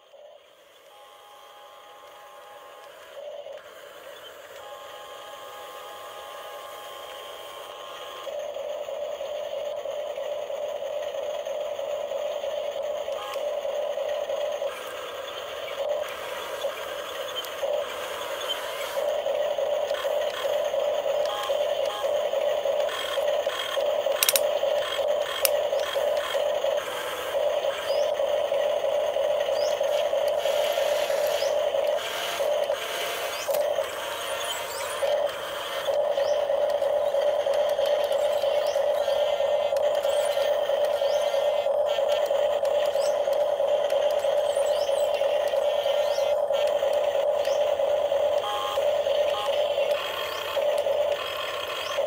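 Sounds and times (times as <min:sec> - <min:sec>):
steady hum: 0:00.0 - 0:52.0.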